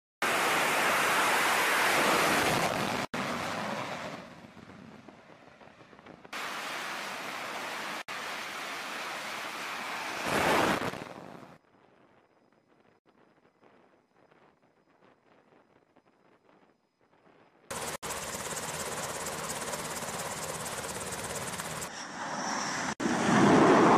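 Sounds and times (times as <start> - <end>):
jet engines roaring: 17.7 - 23.9.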